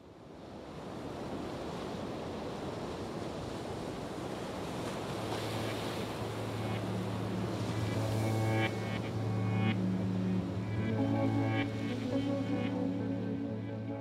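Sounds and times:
steady rushing noise: 0:05.2 - 0:14.0
low hum: 0:05.7 - 0:14.0.

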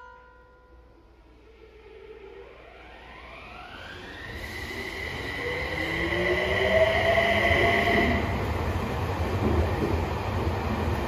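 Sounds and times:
electric train motor whine: 0:01.3 - 0:08.2.

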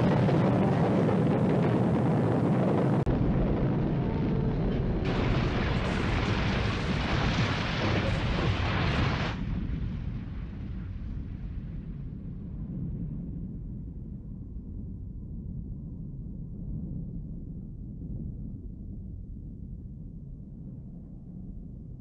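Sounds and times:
explosion rumbling roar: 0:00.0 - 0:12.2.

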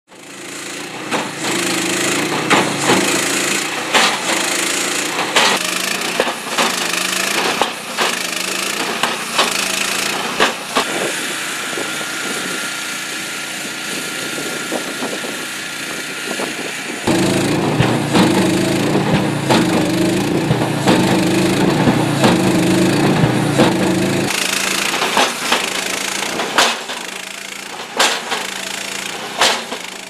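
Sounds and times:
concrete breaker engine running: 0:00.1 - 0:30.0
hammer striking concrete: 0:00.7 - 0:10.9, 0:17.0 - 0:30.0.

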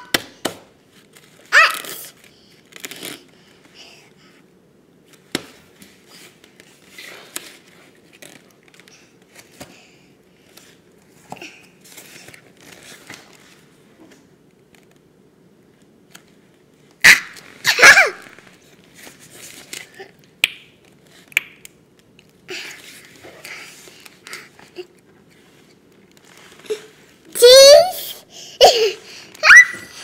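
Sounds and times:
toddler play clicks and rustles: 0:00.0 - 0:04.1, 0:05.0 - 0:15.1, 0:15.8 - 0:30.0
toddler soft vocal sound: 0:26.6 - 0:30.0.

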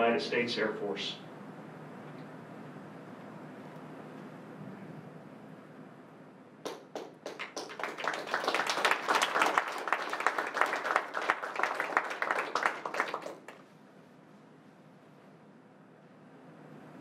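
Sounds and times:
audience applauding: 0:06.7 - 0:13.6.

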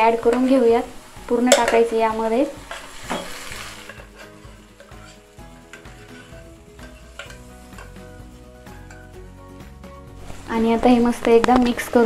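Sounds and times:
faint sizzle from pan: 0:00.0 - 0:12.0
soft background music: 0:00.0 - 0:12.0
spatula scraping pot: 0:02.6 - 0:09.2.

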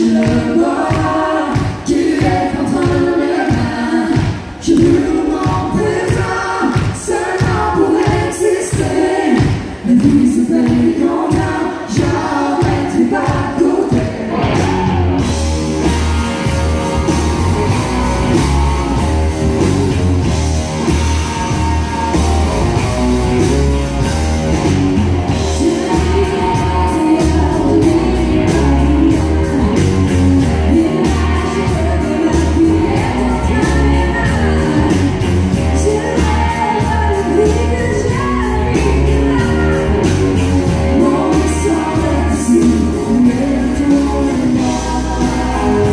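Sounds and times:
woman singing: 0:00.0 - 0:14.4, 0:25.4 - 0:45.9
acoustic and electric guitars: 0:00.0 - 0:45.9
bass and drums: 0:00.0 - 0:45.9.

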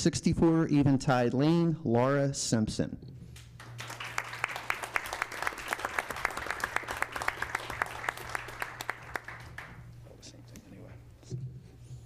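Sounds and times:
audience applauding: 0:03.6 - 0:09.9.

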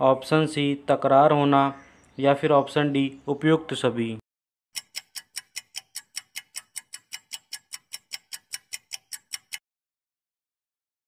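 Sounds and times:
clock ticking fast: 0:04.8 - 0:09.6.

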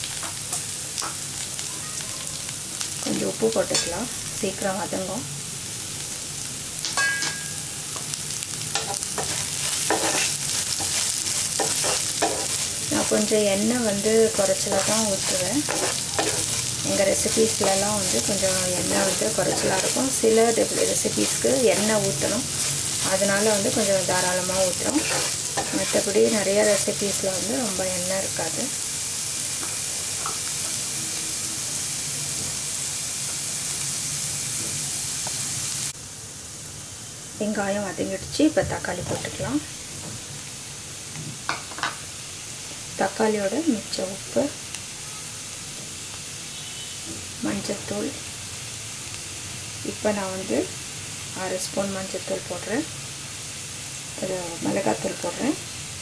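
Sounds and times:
vegetables sizzling in oil: 0:00.0 - 0:56.0
ringing clink: 0:07.0 - 0:07.6
spatula scraping a pan: 0:08.8 - 0:13.2, 0:14.4 - 0:26.8.

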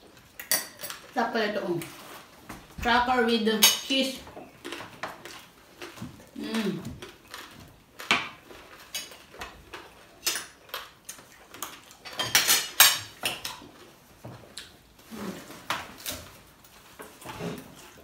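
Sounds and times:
crunching crackers: 0:04.5 - 0:17.2
cutlery clicking on plates: 0:12.0 - 0:13.5.

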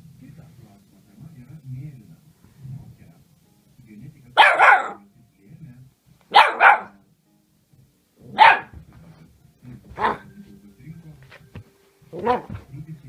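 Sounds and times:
puppy barking: 0:04.4 - 0:05.0, 0:06.3 - 0:07.0, 0:08.2 - 0:08.8, 0:10.0 - 0:10.3, 0:12.1 - 0:12.6.

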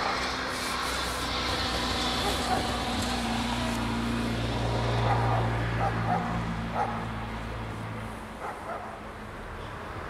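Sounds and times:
train engine humming: 0:00.0 - 0:04.9
dog barking: 0:02.2 - 0:02.8, 0:05.0 - 0:07.1, 0:08.4 - 0:09.0.

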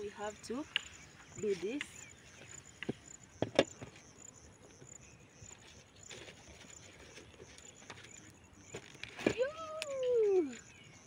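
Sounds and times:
insect chirping: 0:00.0 - 0:11.0.

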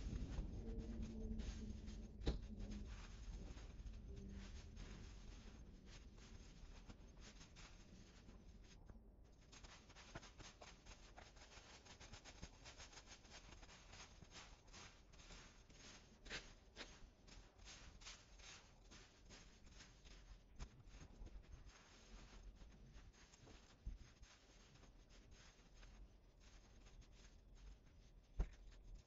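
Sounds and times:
rustling of clippings: 0:00.0 - 0:29.0.

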